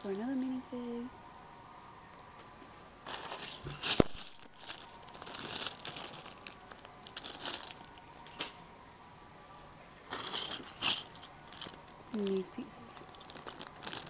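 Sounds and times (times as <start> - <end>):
plastic bags crinkling: 3.0 - 8.0, 10.1 - 14.0.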